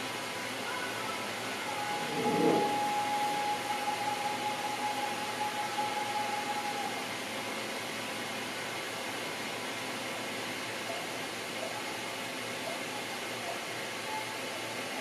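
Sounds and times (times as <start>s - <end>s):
thin high tone: 0.6s - 6.9s.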